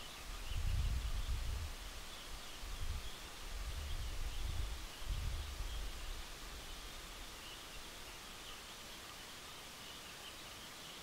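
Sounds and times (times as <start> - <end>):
faint steady hiss: 0.0 - 11.0
wind rumbling on microphone: 0.2 - 7.4.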